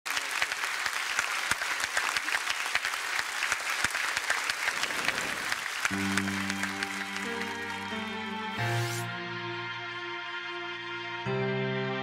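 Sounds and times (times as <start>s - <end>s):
audience applauding: 0.1s - 9.0s.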